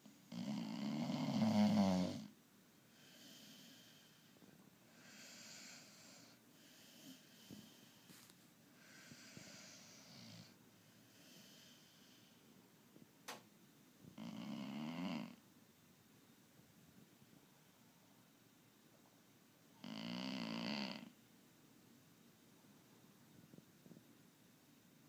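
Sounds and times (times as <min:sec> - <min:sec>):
dog snoring: 0:00.1 - 0:02.3, 0:04.9 - 0:08.0, 0:08.8 - 0:12.4, 0:14.2 - 0:15.4, 0:19.8 - 0:21.2.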